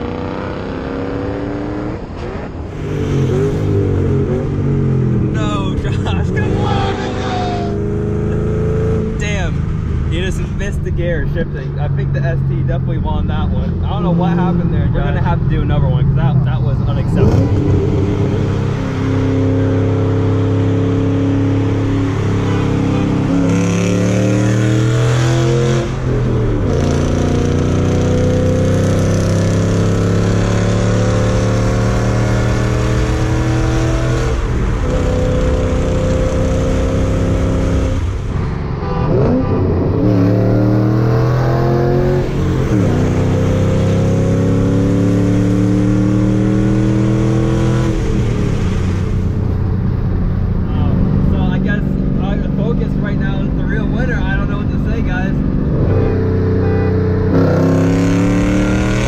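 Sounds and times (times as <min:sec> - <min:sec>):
car engine revving at full throttle: 0:00.0 - 0:59.0.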